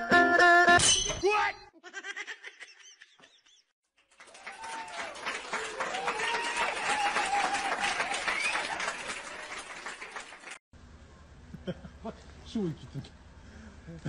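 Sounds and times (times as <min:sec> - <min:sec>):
crowd applauding: 0:04.0 - 0:10.6.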